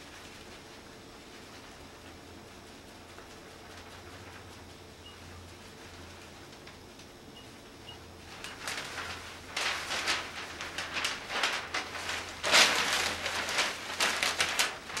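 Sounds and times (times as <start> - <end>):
newspaper pages rustling: 8.2 - 15.0.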